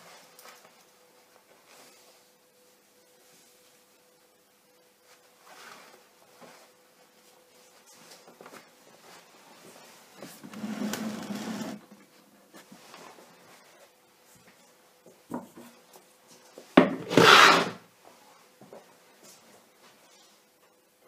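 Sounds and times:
faint steady hum: 0:00.0 - 0:17.1, 0:17.8 - 0:21.0
scraping against hard surface: 0:10.5 - 0:11.8, 0:17.0 - 0:17.8.

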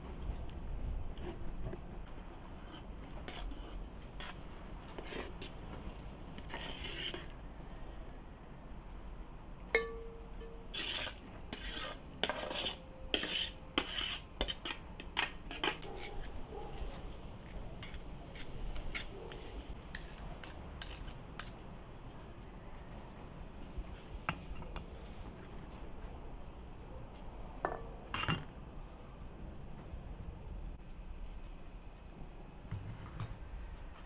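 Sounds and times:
metal spoon scraping a pot: 0:02.5 - 0:05.6, 0:06.4 - 0:07.4, 0:09.8 - 0:16.4, 0:19.9 - 0:21.6.

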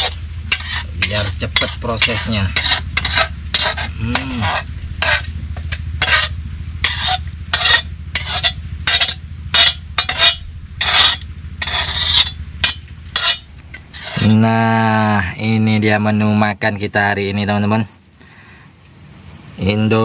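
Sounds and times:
metal ladle scraping a wok: 0:00.0 - 0:14.3
steady low hum: 0:00.0 - 0:20.0.

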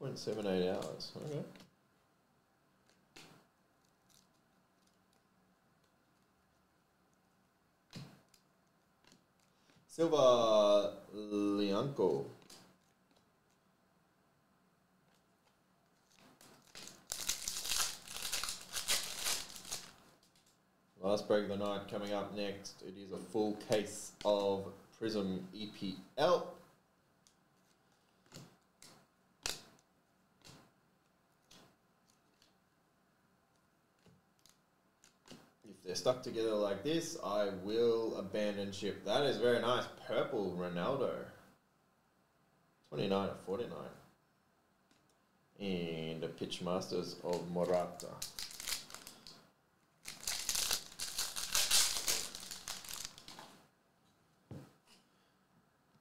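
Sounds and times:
foil pack crinkling and tearing: 0:16.1 - 0:20.5, 0:47.6 - 0:49.4, 0:50.0 - 0:53.4.

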